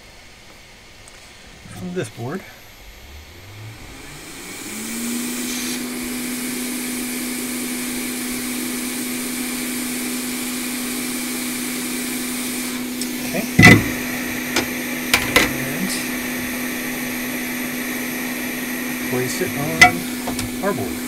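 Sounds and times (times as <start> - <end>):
hot air blower hum with hiss: 0.0 - 21.0
sharp knock: 13.6 - 14.0.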